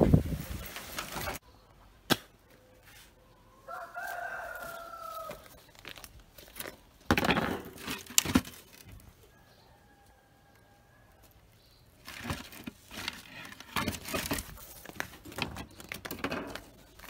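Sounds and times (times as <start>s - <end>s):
rooster crowing: 3.3s - 5.6s, 9.3s - 11.3s.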